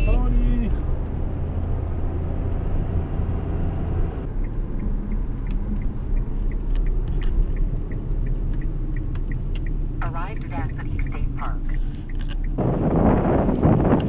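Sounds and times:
road and engine noise in car cabin: 0:00.0 - 0:14.0
faint evenly spaced ticks: 0:04.2 - 0:12.6.

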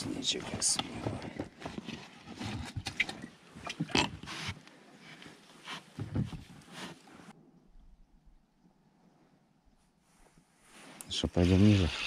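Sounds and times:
rustling and knocks in a boat: 0:00.0 - 0:04.6, 0:05.2 - 0:07.3.

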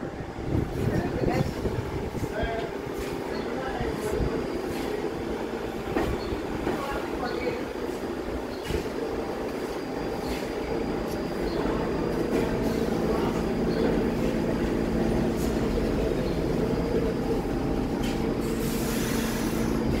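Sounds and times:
subway train rolling: 0:00.0 - 0:20.0.

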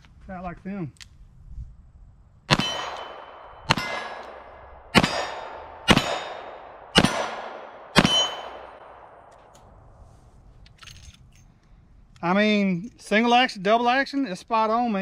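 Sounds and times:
revolver shots echoing: 0:02.5 - 0:09.2.

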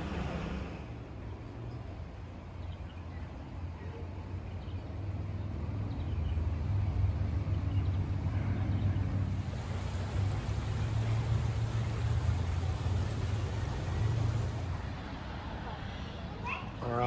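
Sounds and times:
steady low rumble: 0:09.1 - 0:15.2.

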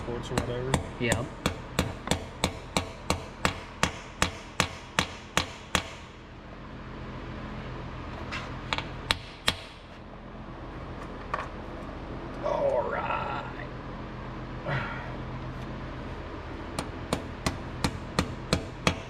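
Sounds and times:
hammer tapping metal plugs: 0:00.0 - 0:06.0, 0:16.8 - 0:19.0.

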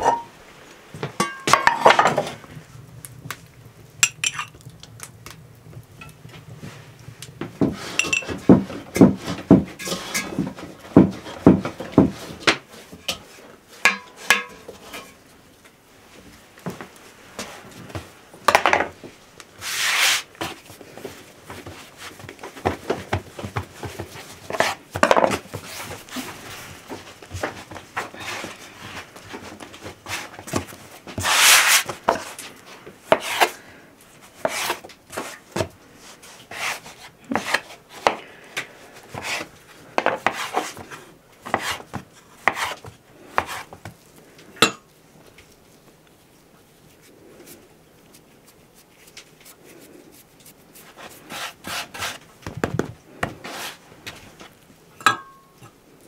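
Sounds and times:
hands rolling dough: 0:03.2 - 0:15.4, 0:16.3 - 0:56.0
scrape on board: 0:19.6 - 0:20.6, 0:24.2 - 0:24.8, 0:31.1 - 0:32.5, 0:33.1 - 0:33.6, 0:34.3 - 0:38.2, 0:39.1 - 0:43.8, 0:49.4 - 0:52.2, 0:53.2 - 0:53.9
knife cutting dough on board: 0:33.1 - 0:33.5, 0:34.4 - 0:35.7, 0:36.5 - 0:38.2, 0:39.1 - 0:43.9.

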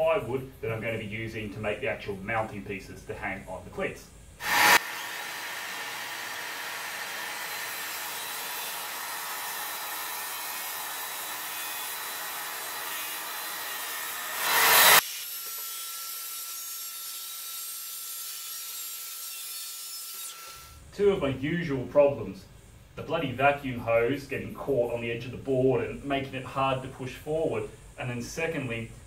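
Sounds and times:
vacuum drawing dust: 0:04.4 - 0:15.0
circular saw cutting plywood: 0:04.4 - 0:20.8.

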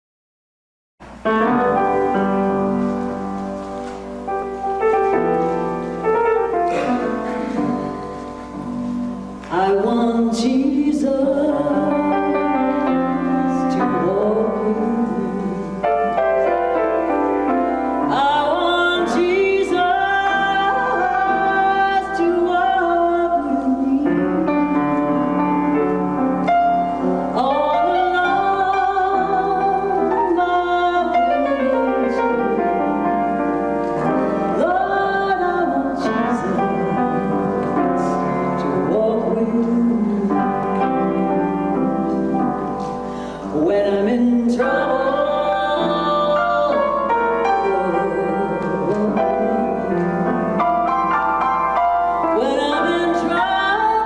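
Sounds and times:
piano: 0:01.0 - 0:54.0
woman singing: 0:06.7 - 0:17.2, 0:18.0 - 0:26.1, 0:27.2 - 0:42.0, 0:43.4 - 0:51.0, 0:52.2 - 0:54.0.

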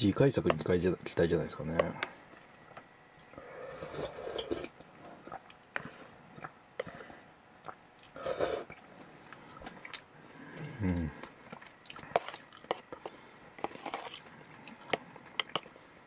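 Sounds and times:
chewing: 0:03.2 - 0:15.7
person slurping noodles: 0:03.4 - 0:05.9, 0:08.1 - 0:08.8.

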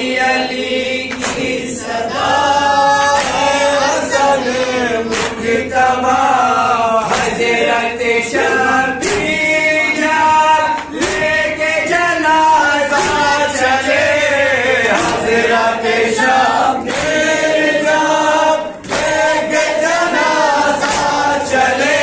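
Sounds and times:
men chanting in unison: 0:00.0 - 0:22.0
hands slapping chests: 0:01.1 - 0:01.6, 0:04.6 - 0:05.5, 0:07.0 - 0:07.5, 0:09.0 - 0:09.4, 0:10.0 - 0:11.6, 0:12.9 - 0:13.4, 0:14.8 - 0:15.4, 0:16.8 - 0:17.4, 0:18.8 - 0:21.4.

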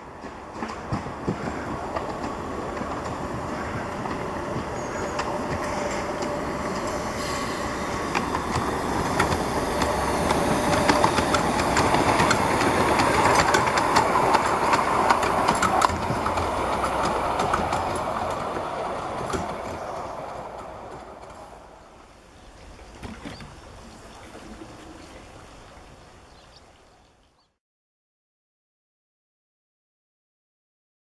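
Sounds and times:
miniature steam train running: 0:00.0 - 0:22.8
wheels clicking on track: 0:00.0 - 0:27.5
steam blowing: 0:01.1 - 0:22.3.

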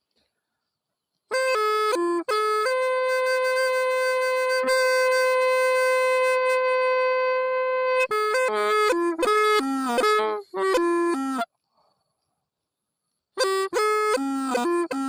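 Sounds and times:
reedy wind instrument music: 0:01.3 - 0:11.5, 0:13.4 - 0:15.0.

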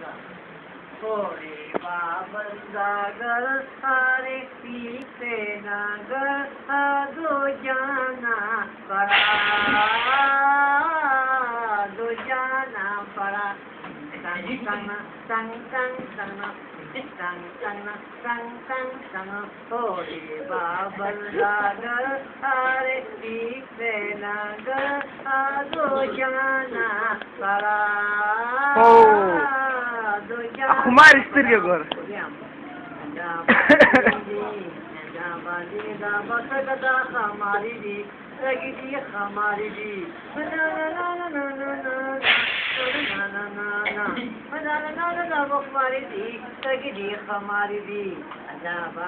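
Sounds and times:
woman singing: 0:01.0 - 0:49.0
high voice singing: 0:06.2 - 0:12.6, 0:19.9 - 0:31.3, 0:39.6 - 0:45.4
loud hiss: 0:09.0 - 0:10.4, 0:42.2 - 0:43.3.

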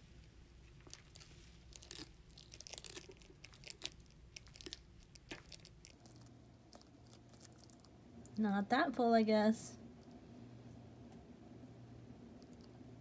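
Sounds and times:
lizard chewing with crunching clicks: 0:00.7 - 0:08.4, 0:12.4 - 0:12.8.

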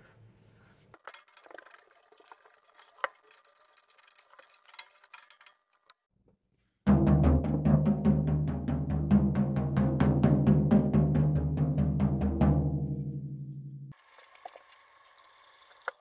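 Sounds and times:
drumstick striking floor tom: 0:06.9 - 0:13.9.

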